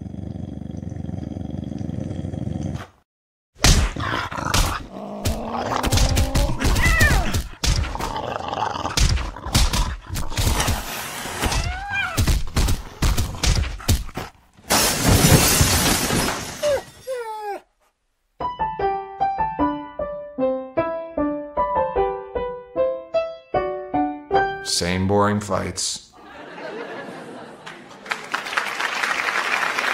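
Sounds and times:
cartoon thuds and crashes: 0:03.6 - 0:08.1, 0:08.9 - 0:16.9
light piano tune: 0:18.4 - 0:24.8.

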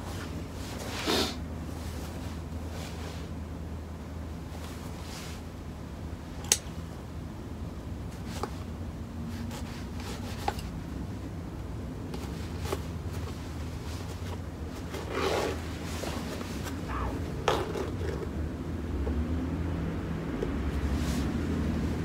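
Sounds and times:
steady low hum: 0:00.0 - 0:22.0
needle and thread scraping neoprene: 0:13.8 - 0:18.2.

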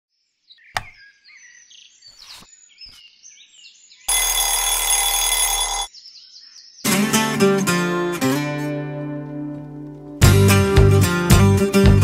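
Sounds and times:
birds chirping: 0:00.5 - 0:04.1, 0:05.8 - 0:07.3
sharp click: 0:00.8 - 0:01.0
alarm clock bell ringing: 0:04.1 - 0:05.9.

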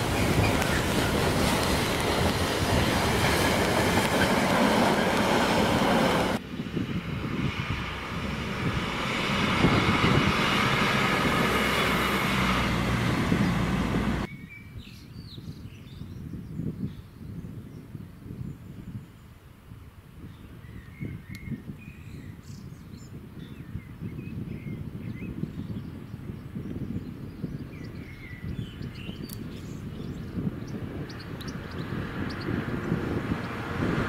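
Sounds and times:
birdsong: 0:00.0 - 0:06.1, 0:13.3 - 0:19.4, 0:20.2 - 0:33.6
diesel train running past: 0:00.0 - 0:14.3, 0:32.1 - 0:34.0
low diesel locomotive rumble: 0:00.0 - 0:14.3.

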